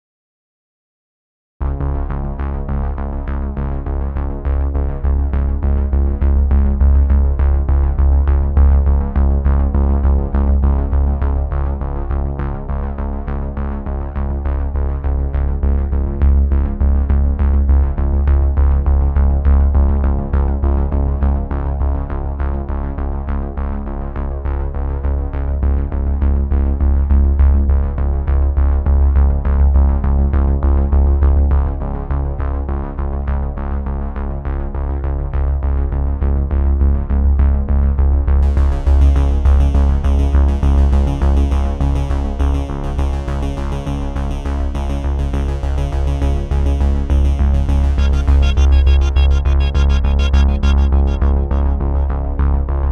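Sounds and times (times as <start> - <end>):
electronic music: 43.8 - 52.9.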